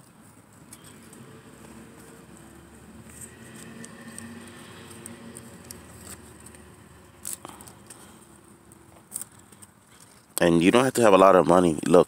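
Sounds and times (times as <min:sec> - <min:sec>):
leaves rustling and crackling: 0:00.0 - 0:10.3
faint low hum: 0:00.3 - 0:10.4
stalks being cut: 0:00.6 - 0:10.1.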